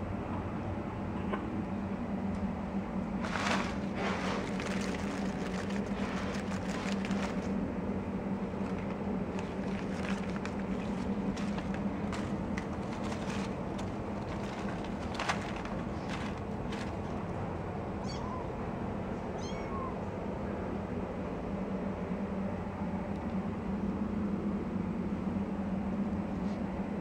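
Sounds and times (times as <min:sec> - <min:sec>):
steady low hum: 0:00.0 - 0:27.0
tissue paper crinkling: 0:03.2 - 0:07.6, 0:08.5 - 0:17.3.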